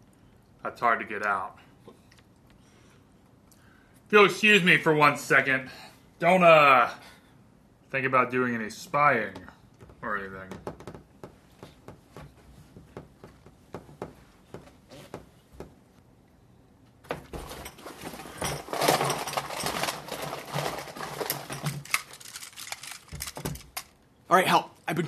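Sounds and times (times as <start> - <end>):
objects handled on a tabletop: 17.0 - 24.0.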